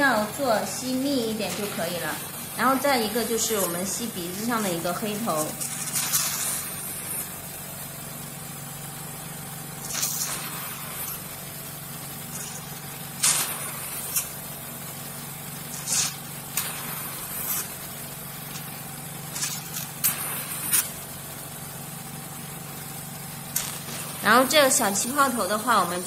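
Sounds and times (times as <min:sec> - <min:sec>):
suction pump humming: 0:00.0 - 0:26.0.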